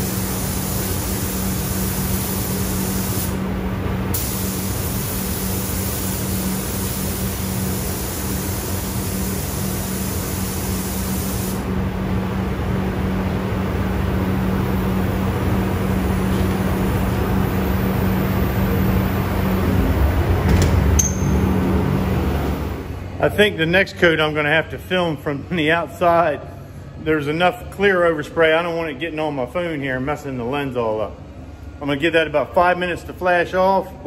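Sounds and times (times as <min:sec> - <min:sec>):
spray gun hissing: 0:00.0 - 0:03.4, 0:04.1 - 0:11.6
fan roar with low hum: 0:00.0 - 0:34.0.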